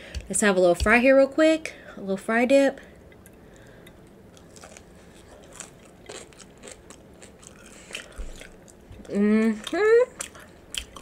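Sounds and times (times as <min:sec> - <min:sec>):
fry being chewed with crunches: 0:03.2 - 0:11.0.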